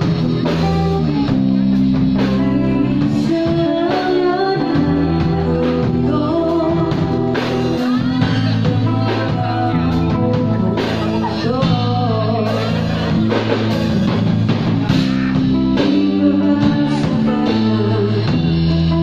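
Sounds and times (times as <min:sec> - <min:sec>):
drums: 0:00.0 - 0:19.0
electric bass: 0:00.0 - 0:19.0
electric guitar: 0:00.0 - 0:19.0
keyboard: 0:00.0 - 0:19.0
woman singing: 0:02.0 - 0:13.4, 0:15.5 - 0:19.0.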